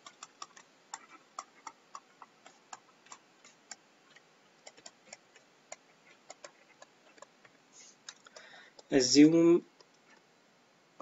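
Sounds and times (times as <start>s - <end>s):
stylus tapping on a tablet: 0.0s - 7.6s.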